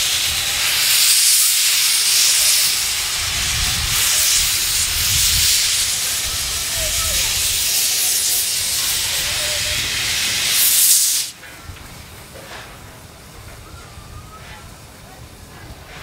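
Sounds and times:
steam locomotive hissing steam: 0.0 - 16.0.

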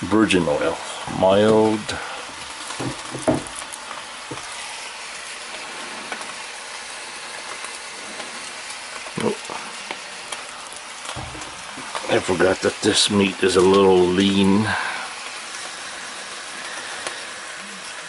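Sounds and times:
meat sizzling in a skillet: 0.0 - 18.0.

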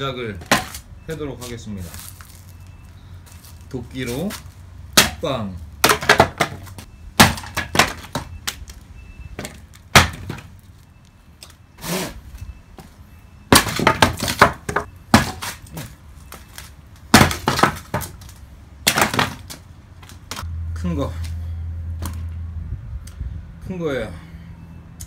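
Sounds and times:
firewood knocking and cracking: 0.4 - 0.8, 4.3 - 5.2, 5.8 - 8.8, 9.4 - 10.5, 13.5 - 16.0, 17.0 - 20.4.

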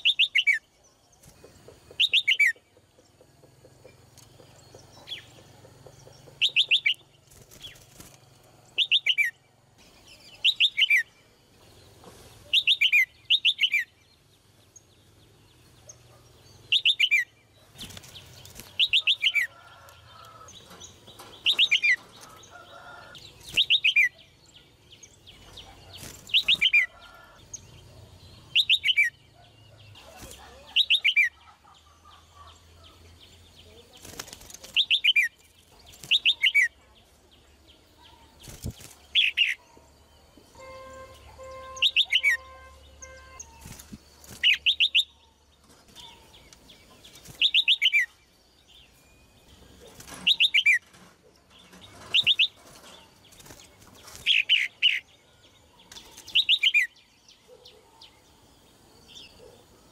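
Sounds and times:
wing flutters: 5.9 - 8.9, 17.6 - 23.9, 25.5 - 27.4, 33.9 - 36.5, 38.4 - 39.5, 43.4 - 44.8, 49.7 - 54.7
bird calling: 40.5 - 43.6.

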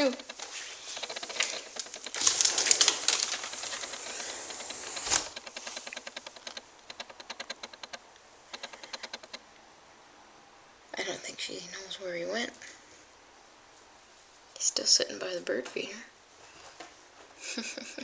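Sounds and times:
sliding door rolling on track: 2.6 - 5.8.

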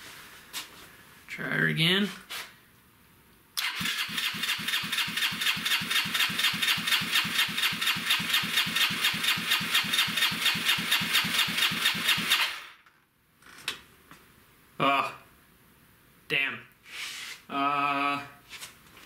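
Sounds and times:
starter cranking engine: 3.6 - 12.7.

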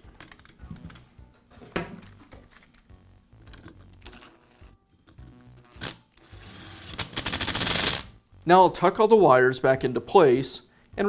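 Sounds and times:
cordless screwdriver whirring: 5.6 - 8.0.

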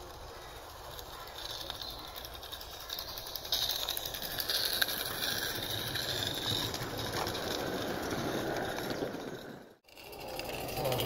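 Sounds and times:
model train wheels rattling on rails: 0.0 - 11.0.

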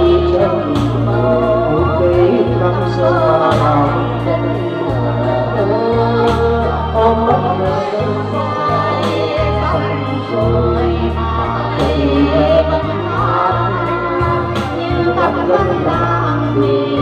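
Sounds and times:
electronic organ backing track: 0.0 - 17.0
woman singing into microphone: 0.0 - 17.0.

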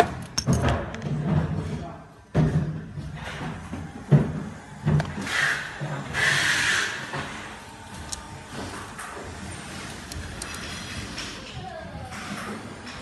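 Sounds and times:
power tool parts knocking and clicking: 0.0 - 1.1, 7.2 - 9.2, 9.8 - 11.4.

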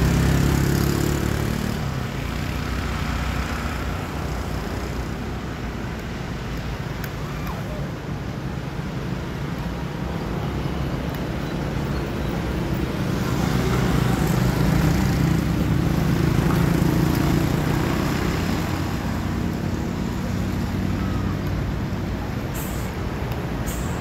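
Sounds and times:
traffic rumble: 0.0 - 24.0
vehicle passing: 12.6 - 24.0.

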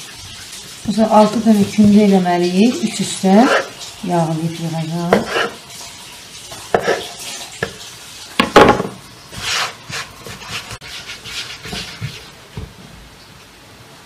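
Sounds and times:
knocks on wooden board: 8.4 - 9.0
hands rubbing dough: 9.3 - 12.3.

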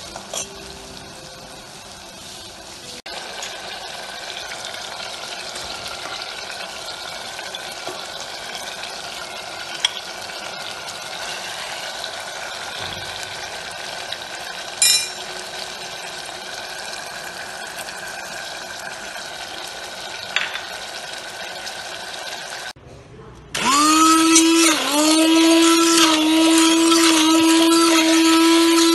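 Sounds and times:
onions sizzling in hot oil: 0.0 - 22.8, 24.2 - 28.9
ladle clinking against metal pot: 14.8 - 15.3.

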